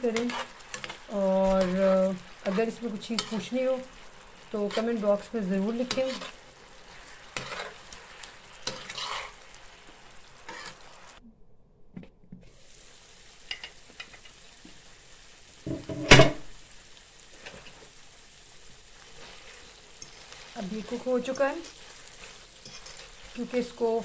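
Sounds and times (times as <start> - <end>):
spatula scraping a pan: 0.0 - 11.1, 19.0 - 23.9
chicken sizzling in a frying pan: 0.0 - 11.2, 12.6 - 24.0.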